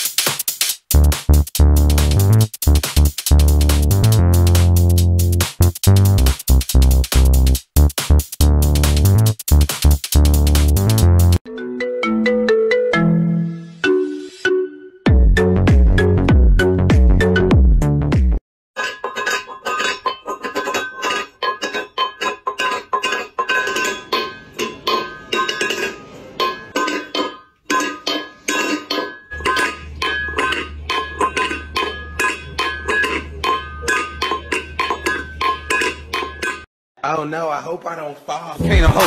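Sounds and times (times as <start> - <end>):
metal bowl clanking on tile: 18.8 - 36.7.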